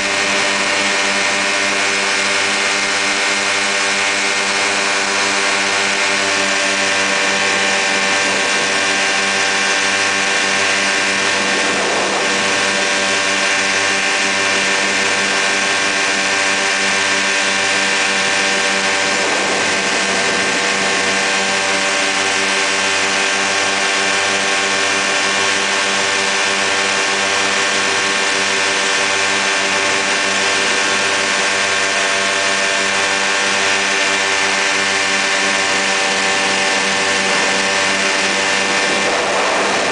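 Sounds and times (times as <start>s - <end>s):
ultralight engine droning: 0.0s - 39.9s.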